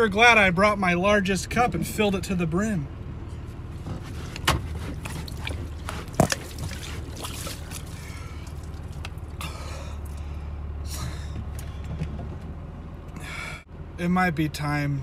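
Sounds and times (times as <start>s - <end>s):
low hum: 1.0s - 14.0s
person slurping a drink: 4.0s - 8.9s
liquid spilling and dripping: 4.9s - 9.4s.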